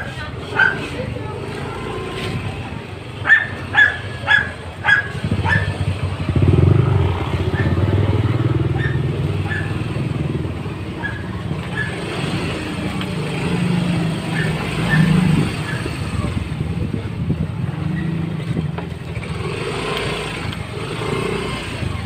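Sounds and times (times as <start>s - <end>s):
dog barking: 0.0s - 1.0s, 3.2s - 5.8s, 7.4s - 8.0s, 8.7s - 9.9s, 10.9s - 12.1s, 14.3s - 15.9s
motorcycle engine running: 0.0s - 22.0s.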